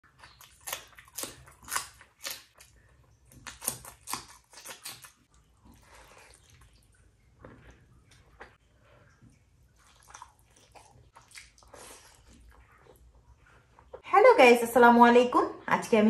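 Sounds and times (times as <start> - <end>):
wet smacking of eating: 0.0 - 14.0.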